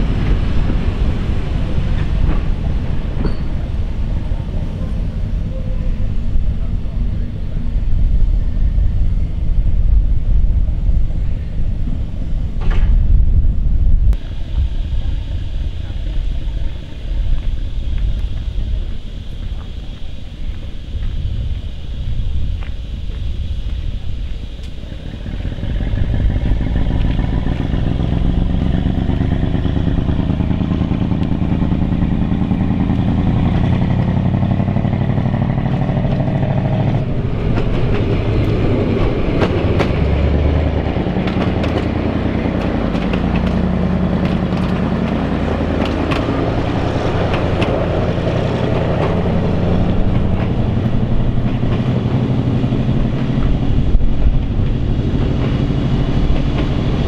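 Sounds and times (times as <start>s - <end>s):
train wheels clattering over rail joints: 0.0s - 7.0s, 25.2s - 57.0s
diesel engines droning: 0.0s - 57.0s.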